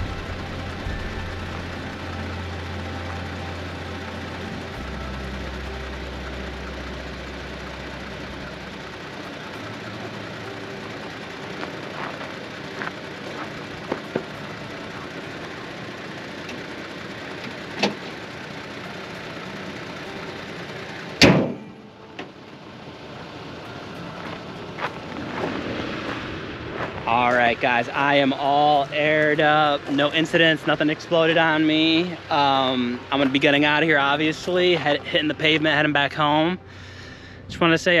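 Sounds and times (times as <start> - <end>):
steady mechanical hum: 0.0 - 38.0
truck hood slammed shut: 21.2 - 21.7.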